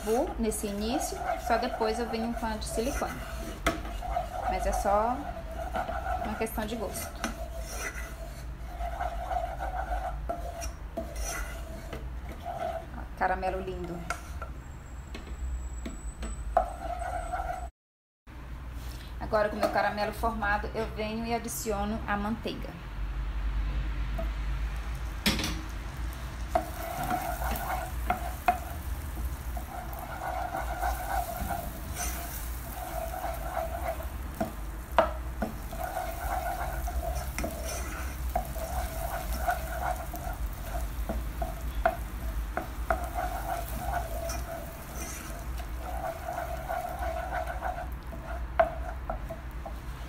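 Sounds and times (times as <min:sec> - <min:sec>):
butter sizzling in caramel: 0:00.0 - 0:12.9, 0:25.9 - 0:50.0
spoon scraping pot: 0:00.0 - 0:14.5, 0:15.8 - 0:17.7, 0:26.5 - 0:50.0.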